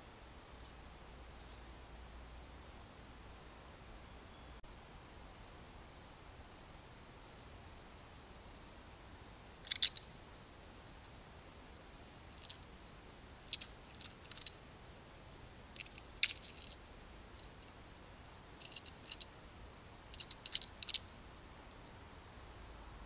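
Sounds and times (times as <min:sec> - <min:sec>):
faint steady hiss: 0:00.0 - 0:23.0
sharp clicks and crackles: 0:09.6 - 0:10.1, 0:12.3 - 0:12.8, 0:13.4 - 0:14.6, 0:15.4 - 0:17.9, 0:18.5 - 0:19.4, 0:20.0 - 0:21.8.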